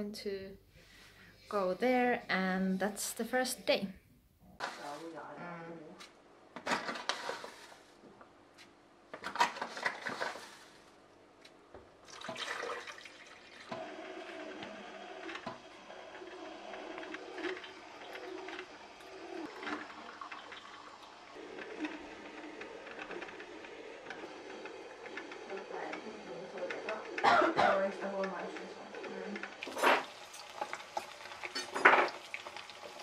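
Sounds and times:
rustling and clatter: 6.6 - 7.9, 9.2 - 10.9
coffee maker gurgling and hissing: 9.3 - 10.9, 12.0 - 33.0
coffee dripping into carafe: 17.0 - 23.4.

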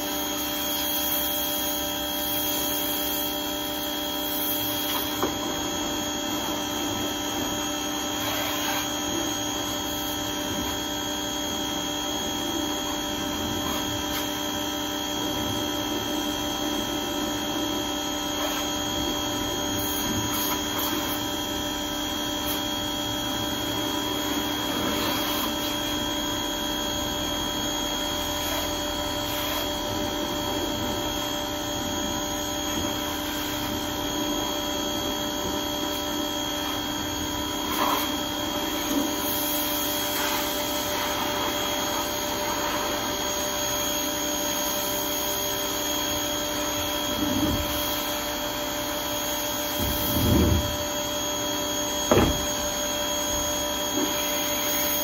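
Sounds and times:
pressure washer humming: 0.0 - 55.0
dull knocks of plastic bin: 52.1 - 52.5.

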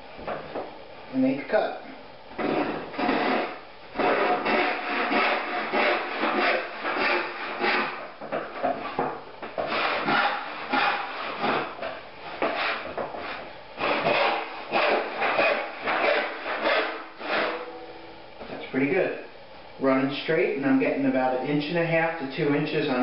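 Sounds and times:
hand saw rasping through wood: 2.4 - 17.7.

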